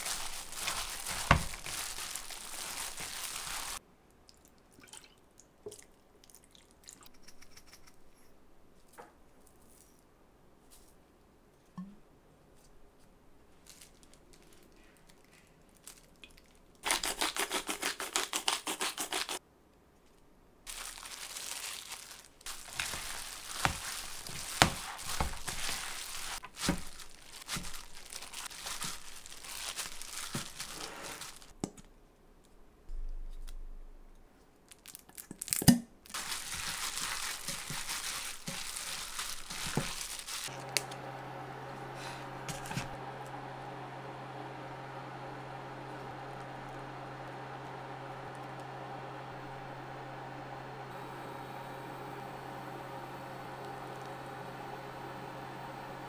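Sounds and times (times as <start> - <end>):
rustling and crinkling: 0.0 - 3.8, 8.7 - 11.8, 12.5 - 17.5, 20.0 - 31.6, 34.4 - 41.0, 41.8 - 43.0
steady hum: 40.5 - 56.0.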